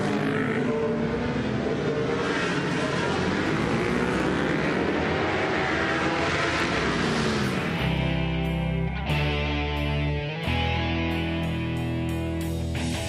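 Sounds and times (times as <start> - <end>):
racing motorcycle engines revving: 0.0 - 8.9.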